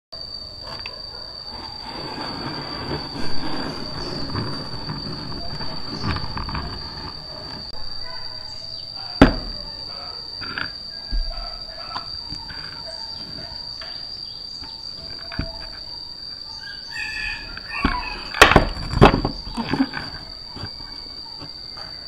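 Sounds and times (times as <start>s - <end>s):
high insect trill: 0.2s - 22.0s
sharp knock: 9.2s - 9.6s
wooden box shifted on bench: 17.8s - 21.6s.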